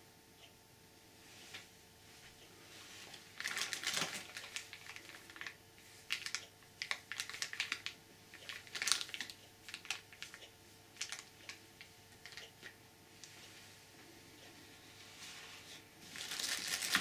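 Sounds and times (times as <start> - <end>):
plastic bag crinkling: 3.1 - 13.3, 16.0 - 17.0.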